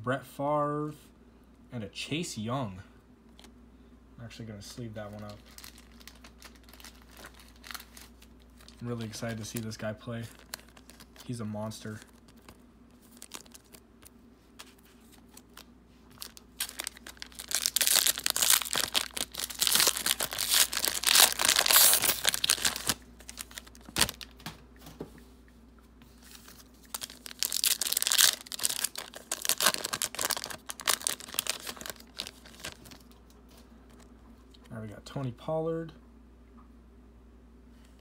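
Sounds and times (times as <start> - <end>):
plastic wrapper crinkling and tearing: 5.0 - 24.4, 26.2 - 34.1.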